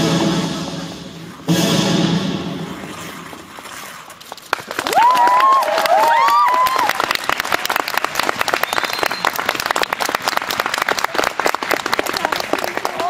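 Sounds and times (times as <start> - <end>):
audience clapping: 4.2 - 13.0
high-pitched cheers: 4.8 - 7.3.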